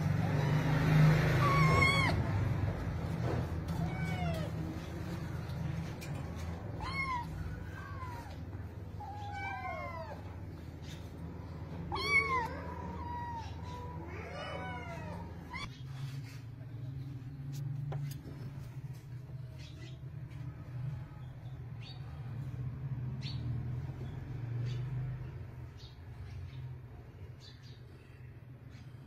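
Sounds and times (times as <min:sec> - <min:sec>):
cat meowing: 0:00.3 - 0:02.5, 0:03.5 - 0:04.8, 0:06.6 - 0:11.0, 0:11.7 - 0:15.7.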